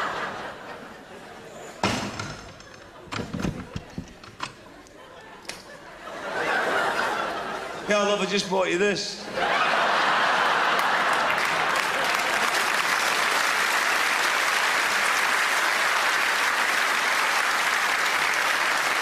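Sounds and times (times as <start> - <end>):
audience applauding: 9.5 - 19.0.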